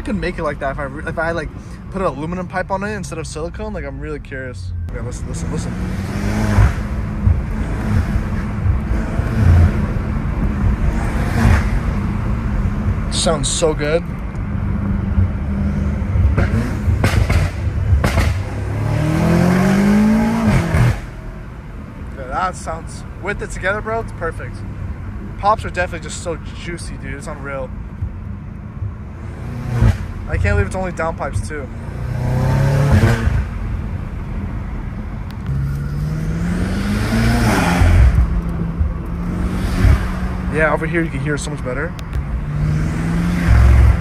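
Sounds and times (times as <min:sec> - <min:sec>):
car engine revving: 0:04.9 - 0:44.0
exhaust pops: 0:16.3 - 0:18.6
turbo and intake whoosh: 0:31.4 - 0:44.0.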